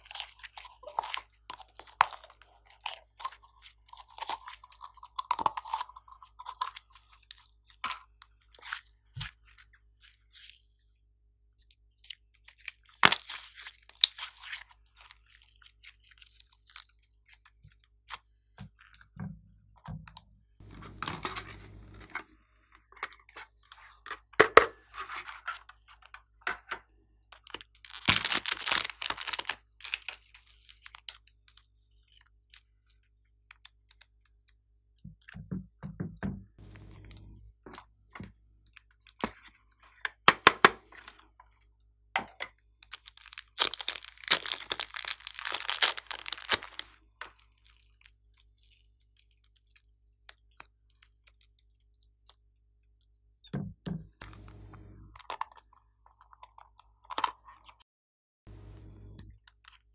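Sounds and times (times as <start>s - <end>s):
slime crackling and popping: 27.6s - 30.2s, 42.8s - 48.6s.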